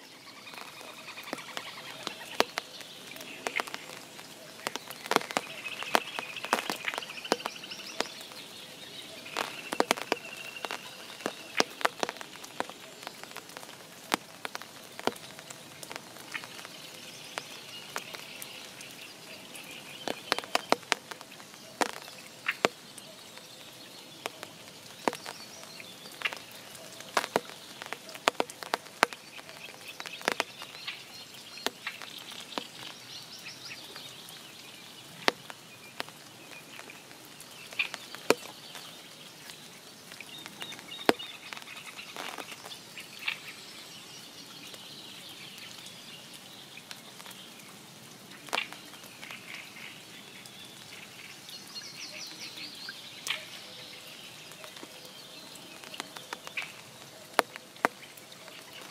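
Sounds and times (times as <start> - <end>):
rain patter: 0.0 - 58.9
raindrops tapping: 0.0 - 58.9.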